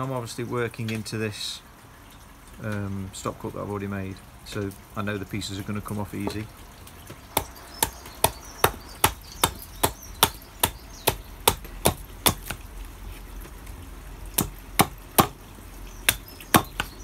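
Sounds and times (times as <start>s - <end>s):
axe chopping wood: 7.4s - 12.6s, 14.4s - 15.4s, 16.1s - 17.0s.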